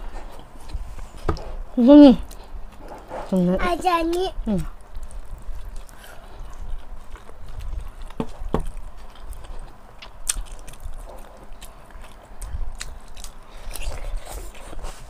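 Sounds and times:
chewing and mouth smacks: 0:04.1 - 0:15.0.

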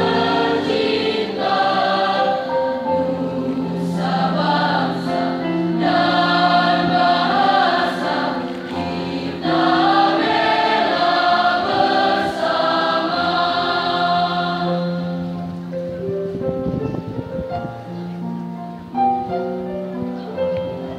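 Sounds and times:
choir singing long held notes: 0:00.0 - 0:16.0.

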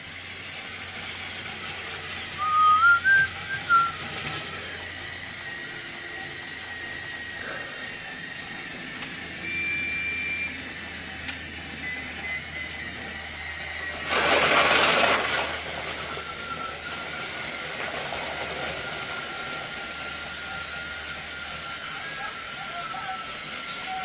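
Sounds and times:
high whistle tone: 0:02.4 - 0:04.0, 0:09.4 - 0:10.7, 0:11.8 - 0:13.6
person whistling: 0:02.4 - 0:04.0.

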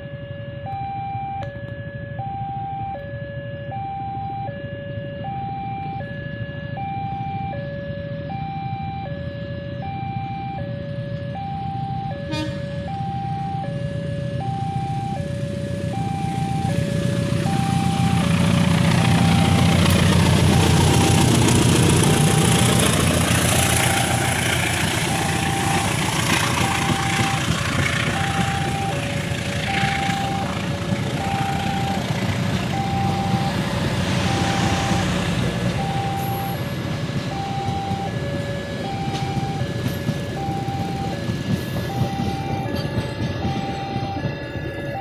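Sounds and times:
crossing warning alarm: 0:00.0 - 0:45.0
diesel locomotive engine: 0:01.4 - 0:45.0
train wheels rumbling on rails: 0:15.0 - 0:45.0.

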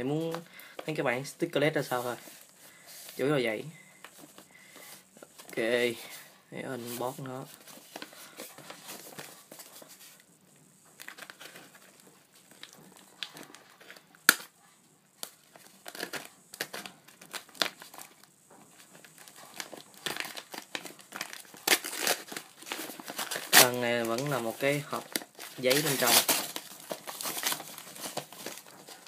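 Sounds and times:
parcel wrapping crinkling: 0:10.9 - 0:29.0.

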